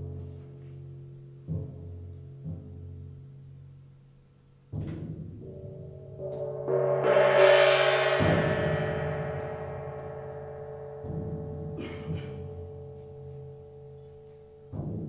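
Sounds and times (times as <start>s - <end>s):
low timpani resonance: 0.0s - 15.0s
soft drum strokes: 4.7s - 15.0s
ringing percussion with overtones: 4.8s - 15.0s.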